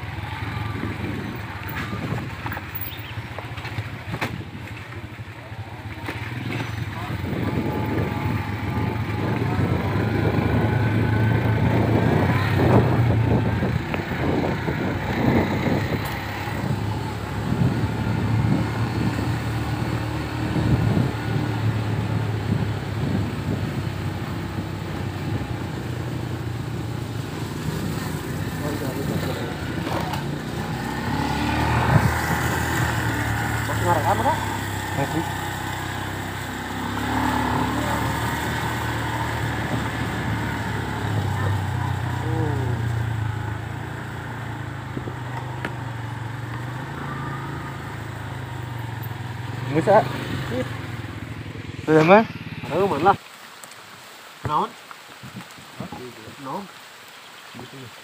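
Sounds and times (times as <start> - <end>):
wind noise: 0.0 - 5.0, 6.4 - 33.4, 55.1 - 56.1
vehicle engine running: 0.0 - 53.2
road noise: 0.0 - 58.0.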